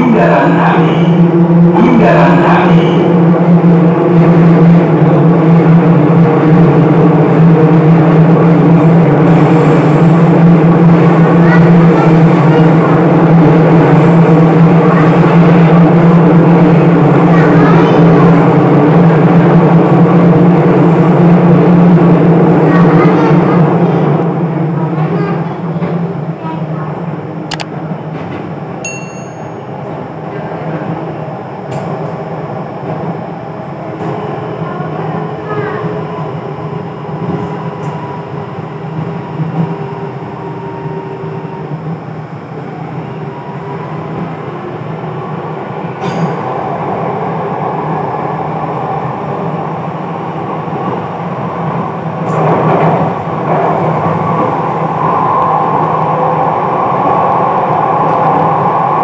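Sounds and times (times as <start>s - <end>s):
train motor humming: 24.6s - 59.0s.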